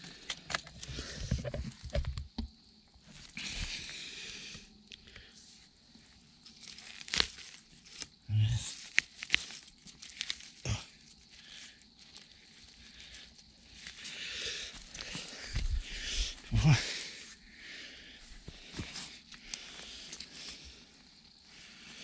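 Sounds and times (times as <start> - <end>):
pine needles rustling and crunching: 6.0 - 16.4
sharp snaps and clicks: 8.7 - 10.5.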